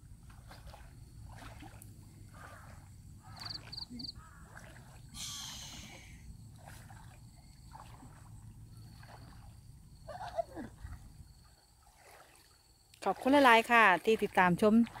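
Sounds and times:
water pouring and sloshing: 0.0 - 5.2, 6.1 - 15.0.

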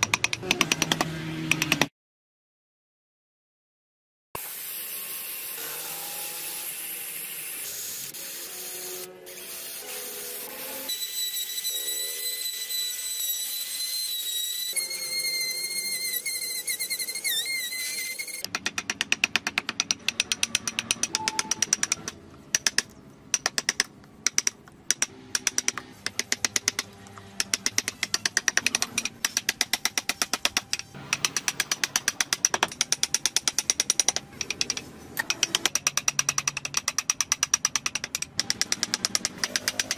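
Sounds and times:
rotary tool grinding wood: 38.0 - 39.9.

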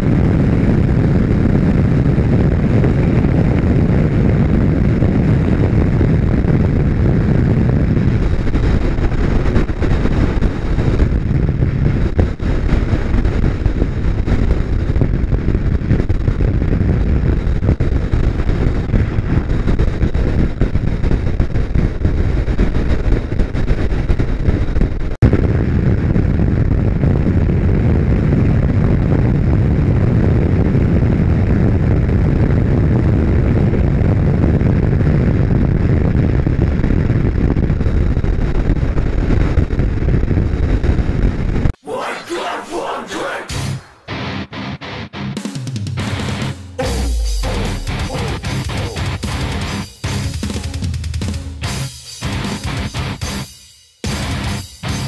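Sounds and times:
wind rush on microphone: 0.0 - 41.8.

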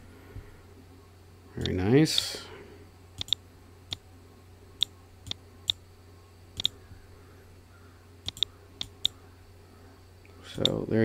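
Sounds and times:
faint low hum: 0.0 - 11.0
computer mouse clicking: 3.2 - 4.0, 6.6 - 6.8, 8.2 - 9.2.

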